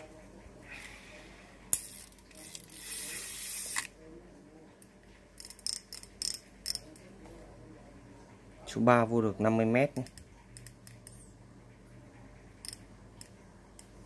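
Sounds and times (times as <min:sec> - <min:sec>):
fishing reel whirring: 0:01.7 - 0:03.9
reel clicks: 0:05.4 - 0:07.1.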